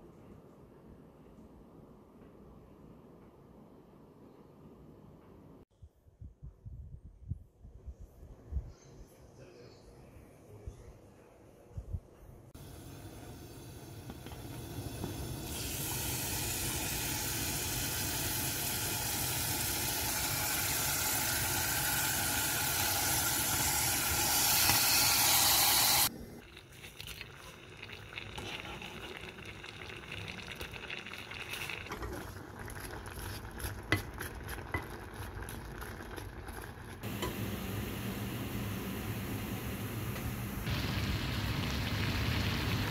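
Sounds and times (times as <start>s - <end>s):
meat and onions sizzling in pan: 12.6s - 26.1s, 37.1s - 42.9s.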